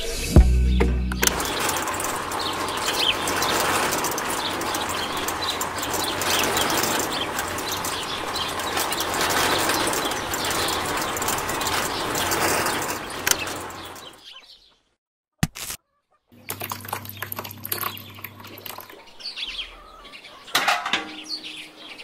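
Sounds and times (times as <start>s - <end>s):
small concrete mixer whirring rattle: 1.2s - 14.2s, 16.4s - 19.0s.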